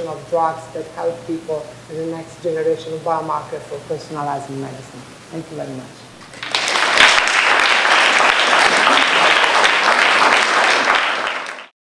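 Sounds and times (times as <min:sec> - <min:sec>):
audience applauding: 0:06.2 - 0:11.7.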